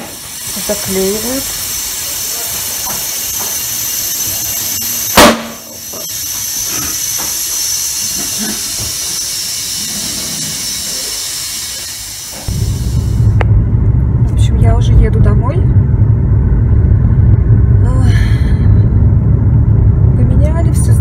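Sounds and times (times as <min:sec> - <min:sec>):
compressed air hissing from hose: 0:00.0 - 0:13.4
car engine rumble: 0:12.4 - 0:21.0.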